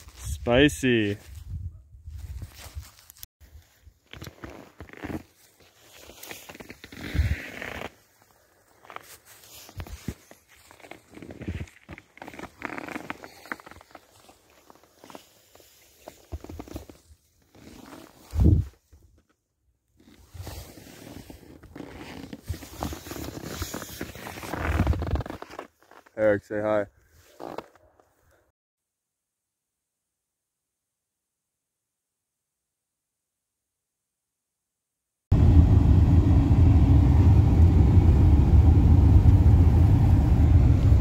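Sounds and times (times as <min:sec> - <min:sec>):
snowboard scraping over snow: 0:04.8 - 0:08.1
road and engine rumble in cabin: 0:35.3 - 0:41.0.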